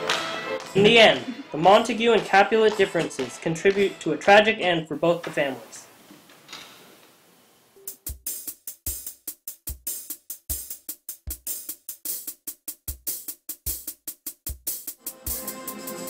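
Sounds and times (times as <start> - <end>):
kick drum: 0.1 - 4.0, 10.5 - 11.5
hi-hat and snare strokes: 7.8 - 16.0.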